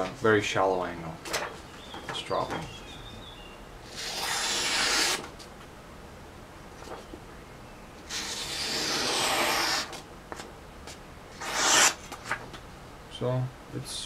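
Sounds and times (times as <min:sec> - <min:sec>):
knife slicing paper: 0:03.9 - 0:05.3, 0:08.1 - 0:10.0, 0:11.4 - 0:12.4.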